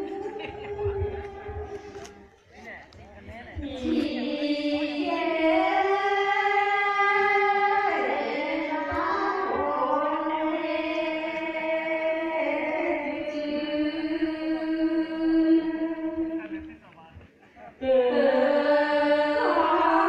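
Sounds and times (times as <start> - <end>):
women chanting in unison: 3.6 - 16.2, 17.8 - 20.0.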